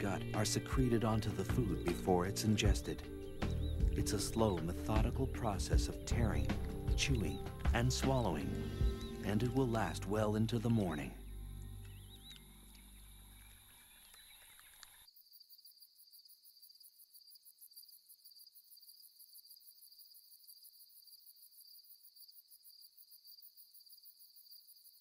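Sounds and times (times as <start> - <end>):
low music bed: 0.0 - 13.8
night insects trilling: 12.0 - 25.0.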